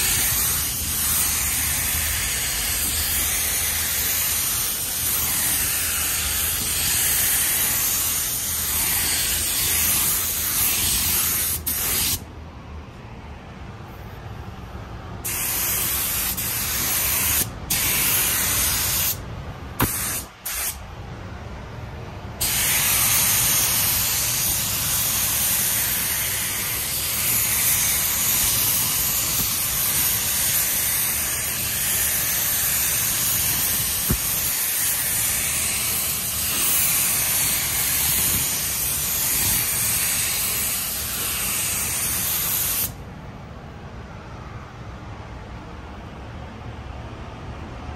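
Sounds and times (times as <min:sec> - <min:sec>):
paint spray gun hissing: 0:00.0 - 0:12.2, 0:15.3 - 0:19.2, 0:19.8 - 0:20.8, 0:22.4 - 0:43.0.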